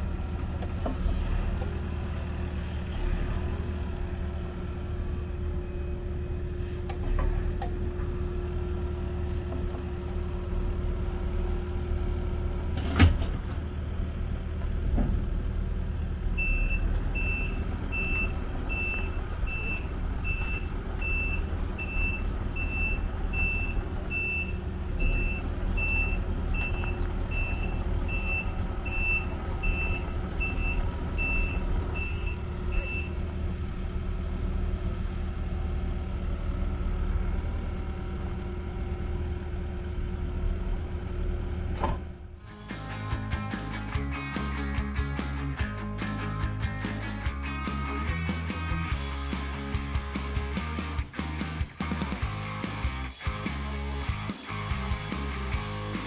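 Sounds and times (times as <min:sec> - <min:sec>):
excavator diesel engine running: 0:00.0 - 0:56.0
sharp clunk: 0:41.8 - 0:42.1.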